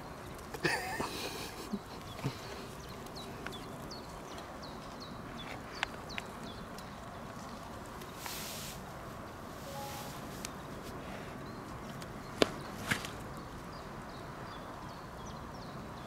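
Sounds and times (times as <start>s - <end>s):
bird chirping: 9.6s - 16.0s.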